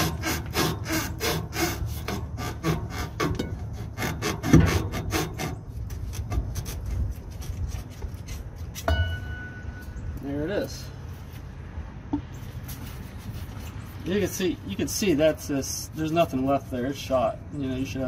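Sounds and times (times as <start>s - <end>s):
shock absorber scraping on stud: 0.0s - 9.0s.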